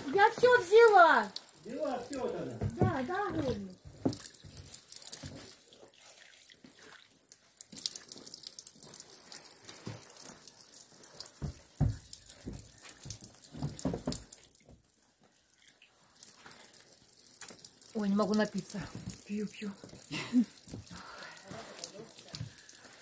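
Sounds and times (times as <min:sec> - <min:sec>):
water drips: 0:00.0 - 0:23.0
water trickling and splashing: 0:00.0 - 0:23.0
dull knocks: 0:02.6 - 0:04.2, 0:11.4 - 0:12.7, 0:13.5 - 0:14.3.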